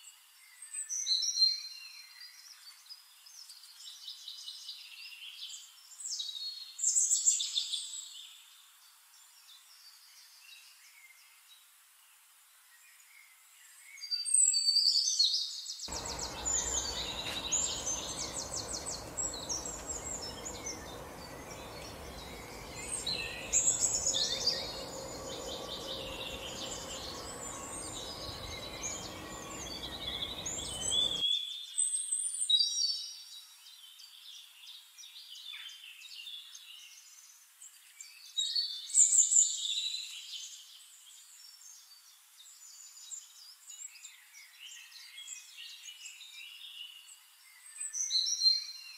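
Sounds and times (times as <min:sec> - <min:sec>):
low steady hiss: 0:15.9 - 0:31.2
songbirds chirping and trilling: 0:15.9 - 0:31.2.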